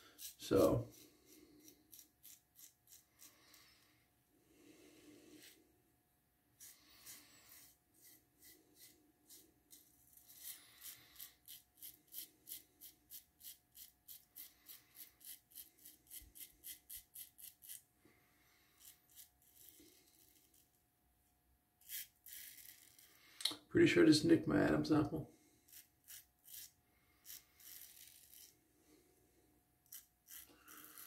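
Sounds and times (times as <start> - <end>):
razor scraping stubble: 0.0 - 3.8, 6.6 - 17.9, 18.6 - 20.8, 21.8 - 23.2, 25.6 - 28.6, 29.8 - 31.0.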